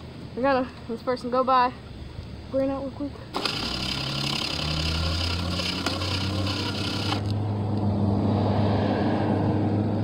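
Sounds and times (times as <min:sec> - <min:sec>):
motor humming: 0:03.3 - 0:07.4
tire scrubbing on asphalt: 0:03.4 - 0:07.4.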